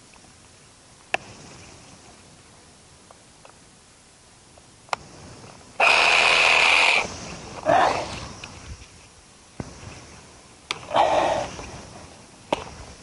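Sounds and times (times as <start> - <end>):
power saw whining: 5.8 - 7.0.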